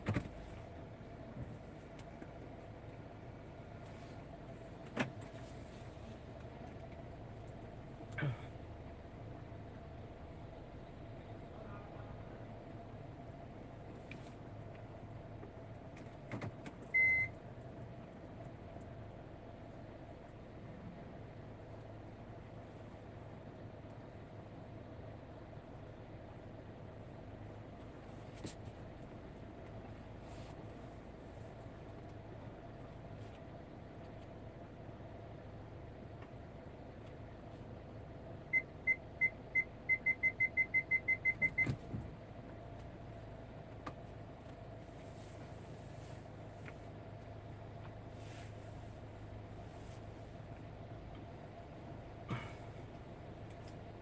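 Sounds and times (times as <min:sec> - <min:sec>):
low background hum: 0:00.0 - 0:54.0
parking sensor beeps: 0:16.8 - 0:17.4, 0:38.5 - 0:41.9.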